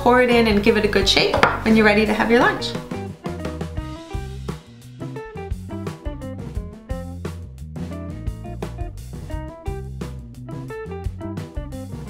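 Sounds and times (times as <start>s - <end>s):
plucked notes: 0.4s - 4.4s
steady drum beat: 1.4s - 12.0s.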